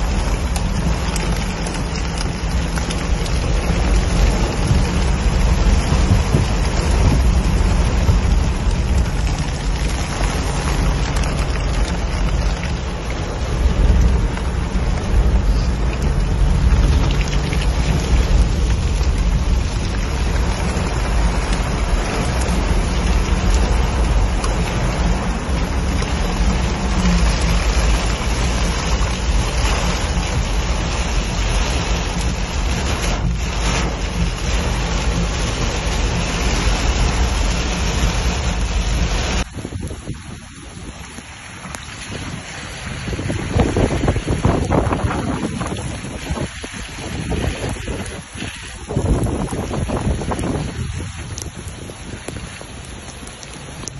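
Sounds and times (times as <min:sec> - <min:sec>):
engine and tyres rumbling: 0:00.0 - 0:53.9
heavy rain and wind on vehicle: 0:00.0 - 0:53.9.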